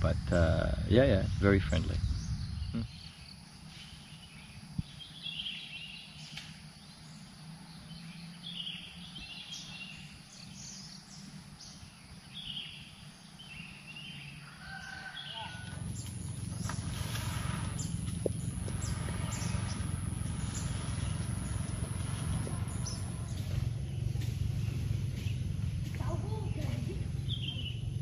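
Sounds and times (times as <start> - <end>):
low outdoor rumble: 0.0 - 28.0
short bird calls: 14.4 - 24.1.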